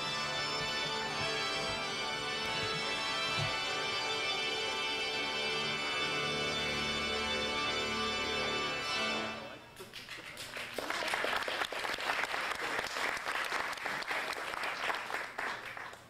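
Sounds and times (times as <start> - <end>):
organ chord: 0.0 - 9.7
audience applauding: 9.8 - 16.0.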